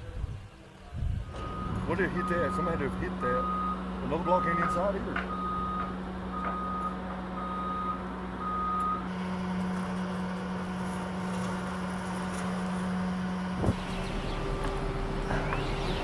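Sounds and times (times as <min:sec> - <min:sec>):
low engine drone: 0:00.0 - 0:16.0
reversing alarm beeps: 0:01.3 - 0:09.1.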